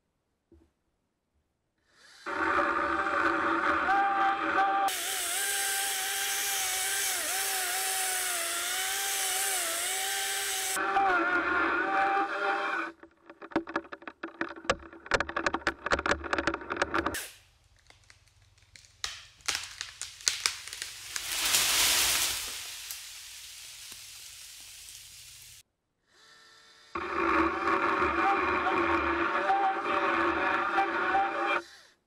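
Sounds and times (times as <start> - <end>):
chainsaw whining cutting log: 2.2 - 16.1, 27.0 - 31.6
wood cracking and snapping: 12.9 - 23.1
hiss: 21.0 - 25.6.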